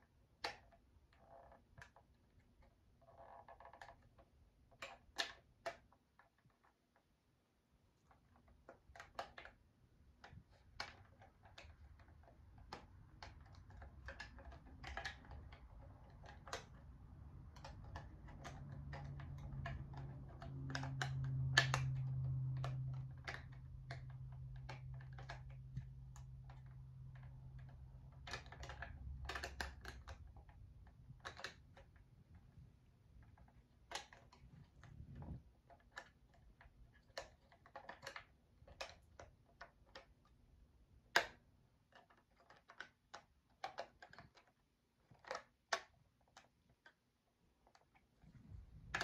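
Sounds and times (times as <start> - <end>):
plastic clock being handled: 8.0 - 40.4, 41.1 - 49.0.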